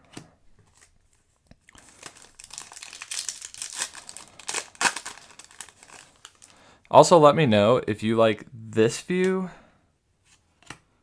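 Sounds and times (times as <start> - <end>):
foil wrapper crinkling and tearing: 1.7 - 6.6.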